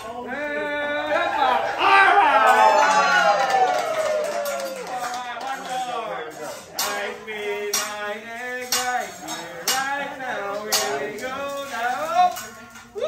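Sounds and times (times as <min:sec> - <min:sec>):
metal spatulas clanking on griddle: 0:04.4 - 0:13.0
singing over music: 0:06.3 - 0:13.0.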